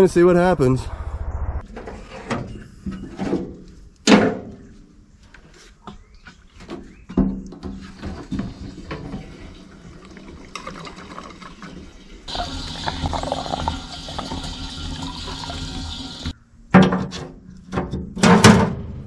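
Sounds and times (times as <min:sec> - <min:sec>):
diesel pouring into tank: 0:08.1 - 0:16.3.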